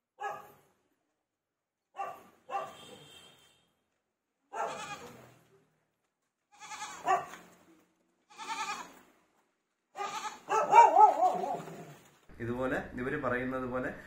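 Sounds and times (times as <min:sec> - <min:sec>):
goat bleating: 0:04.6 - 0:05.2, 0:06.5 - 0:07.1, 0:08.3 - 0:09.0, 0:10.0 - 0:10.5.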